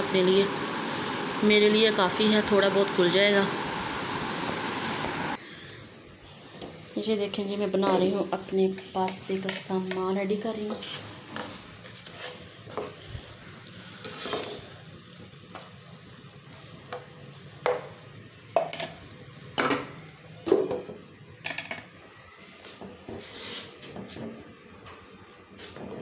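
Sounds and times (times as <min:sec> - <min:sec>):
chicken sizzling in oil: 0:00.0 - 0:26.0
spoon scraping and knocking pan: 0:07.8 - 0:13.0, 0:14.0 - 0:14.7, 0:16.9 - 0:17.9, 0:18.6 - 0:19.0.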